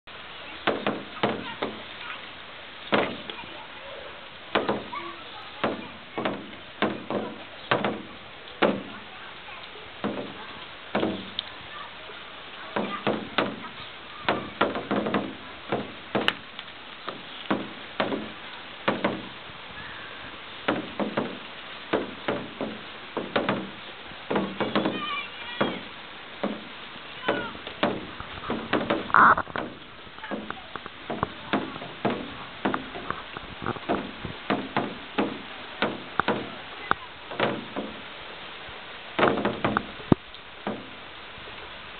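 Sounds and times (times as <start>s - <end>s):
rain hissing on wet pavement: 0.0s - 41.9s
large drops plopping: 10.0s - 11.5s.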